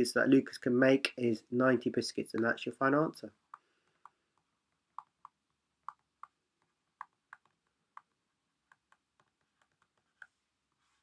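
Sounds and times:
stylus clicking on tablet: 3.5 - 10.4.

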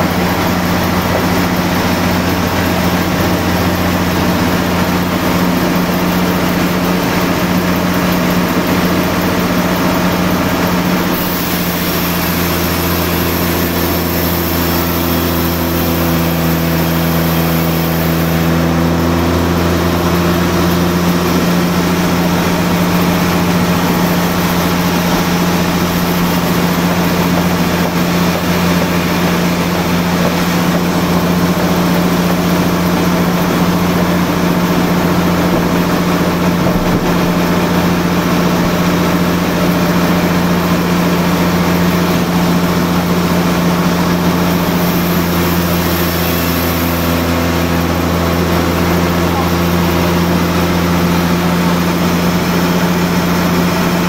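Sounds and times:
higher machine tones: 0.0 - 39.8
band saw machinery hum: 0.0 - 54.0.

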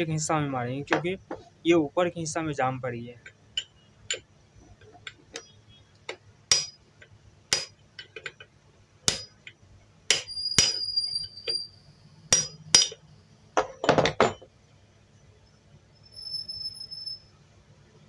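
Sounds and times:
hammer striking metal shaft: 6.5 - 6.8, 9.1 - 9.4, 10.1 - 10.8, 12.3 - 13.0.

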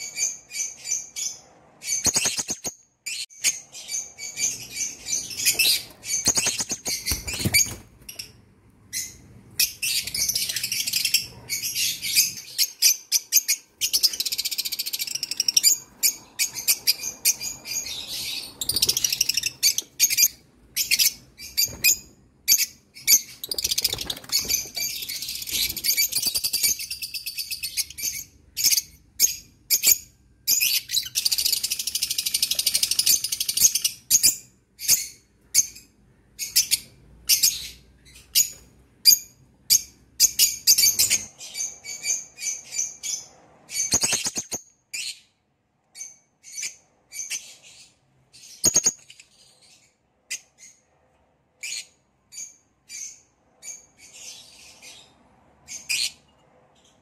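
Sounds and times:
parrot chicks calling: 0.0 - 45.3.

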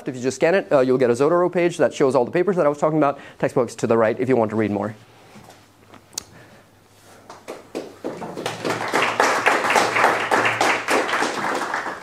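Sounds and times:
audience applauding: 7.3 - 12.0.

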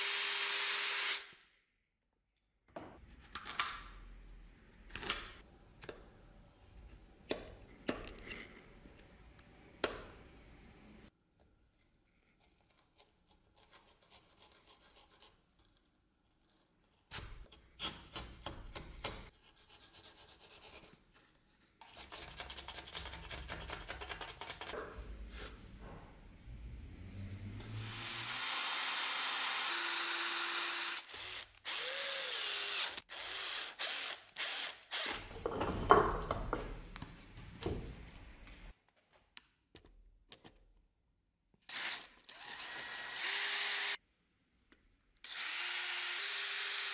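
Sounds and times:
electric drill working wood: 0.0 - 1.4, 27.6 - 35.2, 41.7 - 44.0, 45.3 - 46.9.

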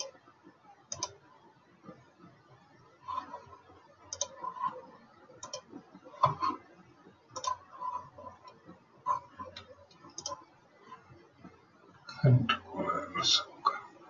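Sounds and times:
computer mouse clicks: 0.9 - 1.2, 3.1 - 4.8, 5.4 - 6.6, 7.3 - 10.4.

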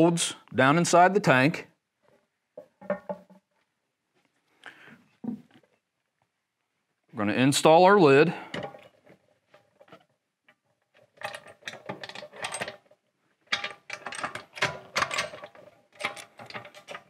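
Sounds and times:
metal lid clamps clanking: 13.5 - 17.0.

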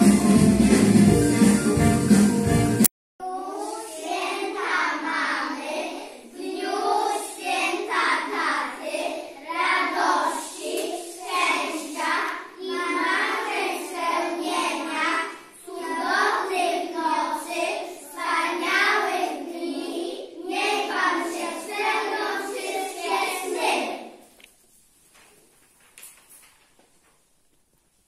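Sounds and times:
children singing together: 3.2 - 24.2.

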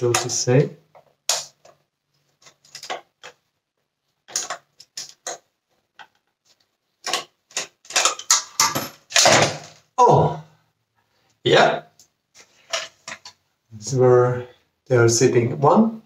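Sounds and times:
plastic parts clicking and knocking: 0.0 - 3.5, 4.2 - 9.9, 12.0 - 13.4.

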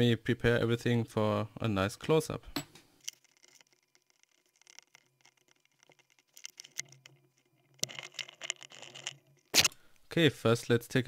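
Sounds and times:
small metal parts clicking: 3.0 - 9.6.

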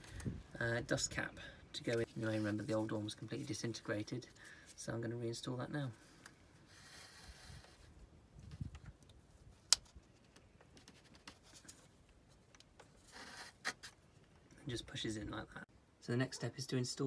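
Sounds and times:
faint handling sounds: 5.8 - 14.7.

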